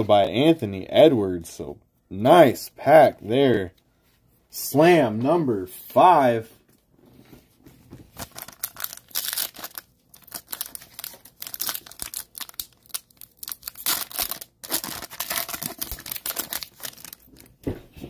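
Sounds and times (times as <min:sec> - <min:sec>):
plastic wrapper crinkling and tearing: 0:08.1 - 0:17.6.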